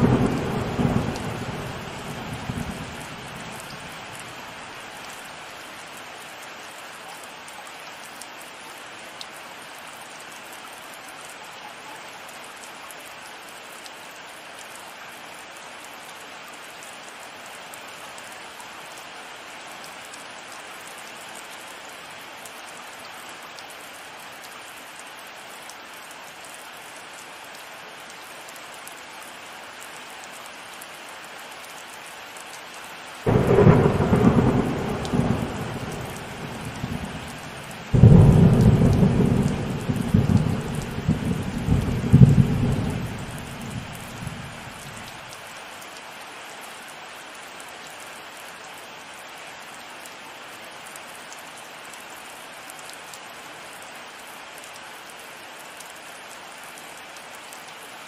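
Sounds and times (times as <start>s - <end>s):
thunderclap rumbling: 0.0s - 3.4s, 33.3s - 44.9s
rain hissing: 0.0s - 5.5s, 33.1s - 45.5s.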